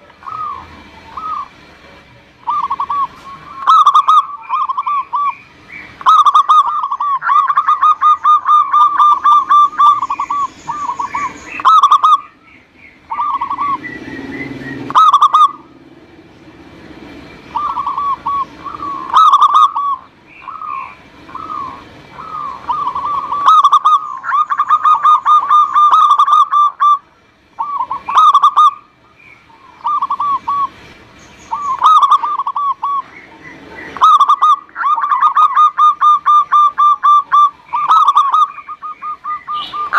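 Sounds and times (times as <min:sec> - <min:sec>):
doves cooing: 0:00.0 - 0:01.6, 0:02.4 - 0:16.1, 0:17.0 - 0:28.9, 0:29.5 - 0:30.8, 0:31.5 - 0:39.9
sharp high bird notes: 0:00.2 - 0:01.6, 0:02.4 - 0:15.7, 0:17.4 - 0:33.3, 0:33.9 - 0:39.9.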